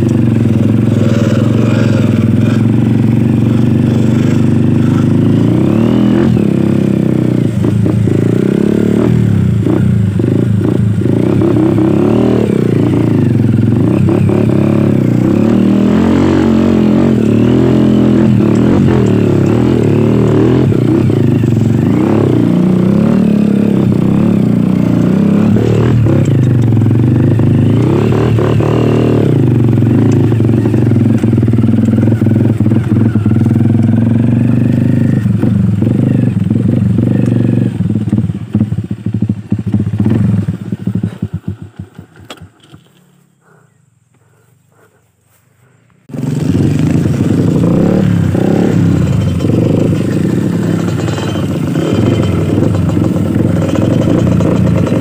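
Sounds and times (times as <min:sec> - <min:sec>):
dirt bike engine revving: 0:00.0 - 0:43.2, 0:46.0 - 0:55.0
bike rattling: 0:09.6 - 0:43.2, 0:45.9 - 0:55.0.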